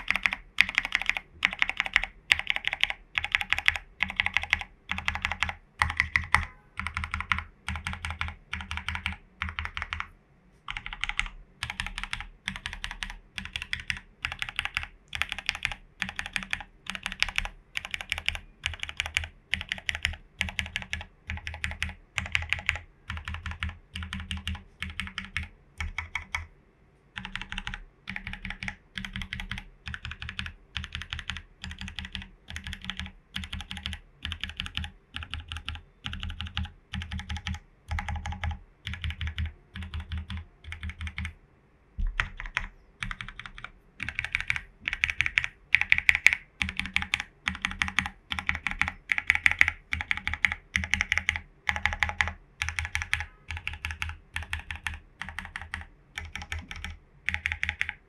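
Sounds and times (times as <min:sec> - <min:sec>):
mechanical keyboard typing: 0:00.0 - 0:10.1, 0:10.7 - 0:26.5, 0:27.2 - 0:41.4, 0:42.0 - 0:58.0.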